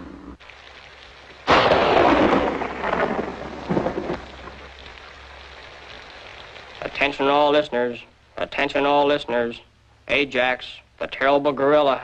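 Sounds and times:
rain hissing: 0:00.0 - 0:12.0
thunderclap: 0:01.5 - 0:05.0.

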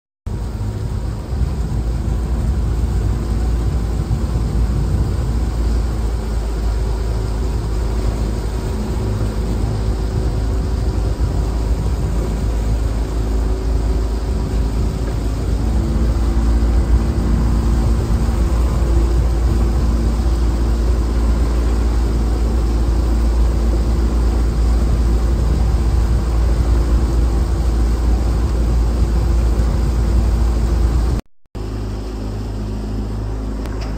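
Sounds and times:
outboard motor running: 0:00.3 - 0:33.9.

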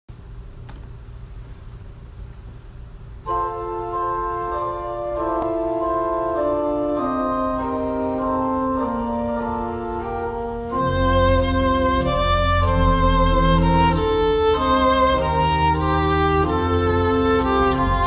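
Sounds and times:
organ playing held chords: 0:03.2 - 0:18.0.

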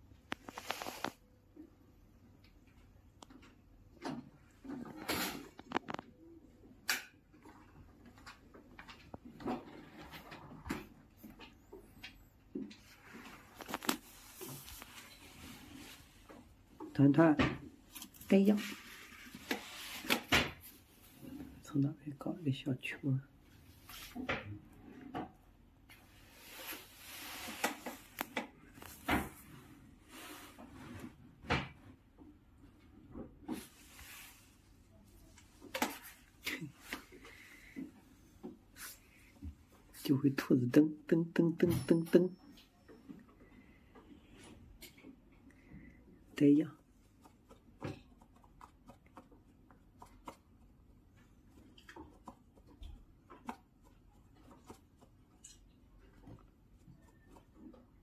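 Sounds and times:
soft rustling: 0:00.2 - 0:01.2, 0:11.2 - 0:17.0, 0:17.8 - 0:21.8
cat scratching a toy: 0:46.9 - 0:58.0.

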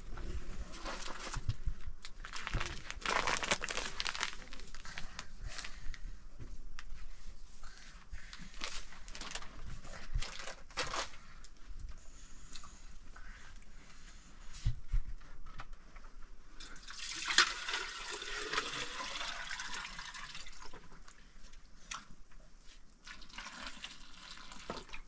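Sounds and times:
rustling and crinkling: 0:00.0 - 0:16.6.

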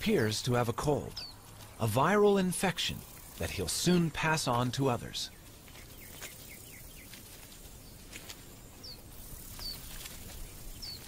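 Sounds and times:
small bird chirping: 0:05.2 - 0:11.0.

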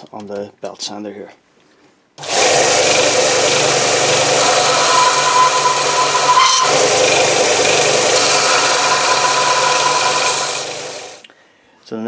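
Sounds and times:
belt sander sanding wood: 0:02.2 - 0:11.2.

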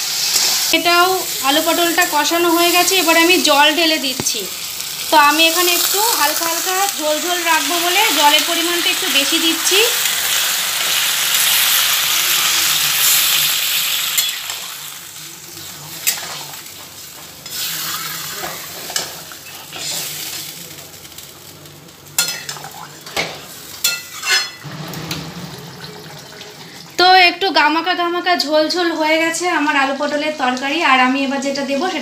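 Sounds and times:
water sizzling in hot pan: 0:00.0 - 0:32.0
spatula stirring and scraping: 0:17.4 - 0:20.1.

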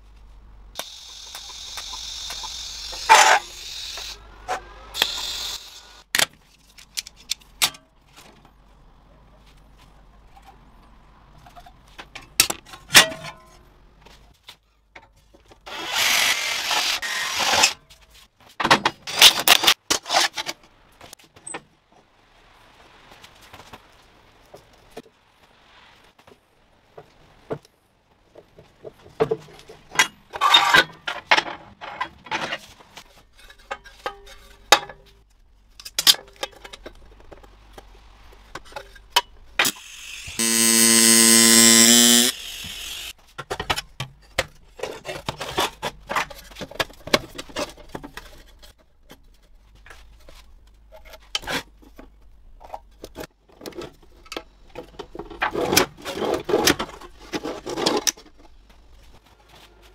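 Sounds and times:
welding arc buzzing: 0:00.8 - 0:04.2, 0:05.0 - 0:06.0, 0:39.6 - 0:43.1.

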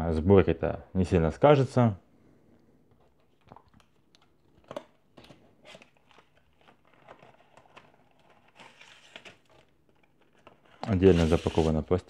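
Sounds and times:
plastic packaging crinkling: 0:03.3 - 0:11.8.

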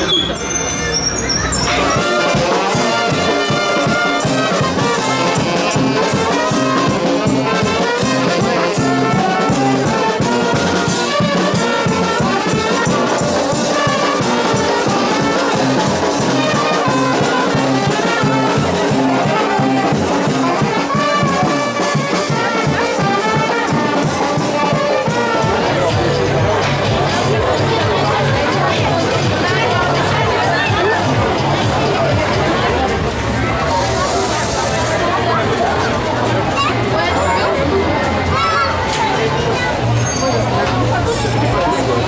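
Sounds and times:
street brass band playing: 0:00.0 - 0:42.0.

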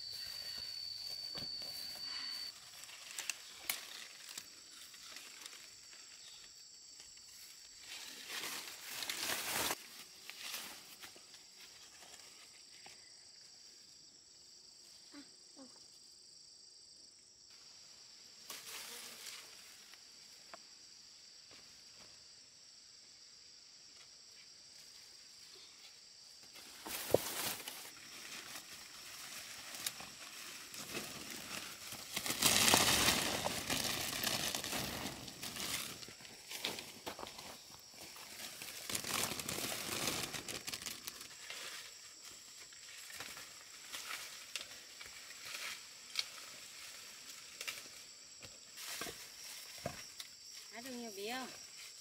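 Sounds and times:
leaves and stems rustling: 0:00.0 - 0:12.6, 0:26.5 - 0:52.0
insects droning: 0:00.0 - 0:52.0.

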